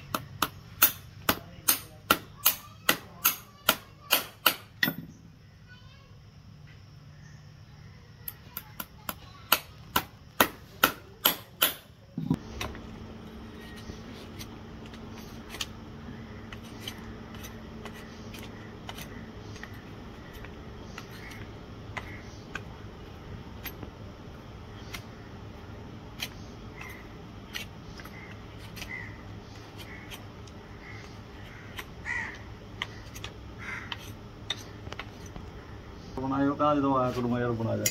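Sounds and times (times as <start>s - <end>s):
knife scraping hoof: 13.5s - 15.8s, 16.4s - 22.3s, 26.2s - 32.0s, 32.8s - 35.4s.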